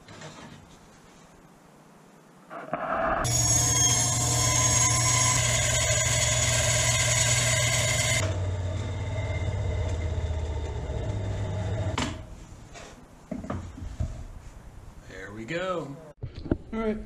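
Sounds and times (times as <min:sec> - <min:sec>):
band saw motor humming: 0:03.2 - 0:12.0.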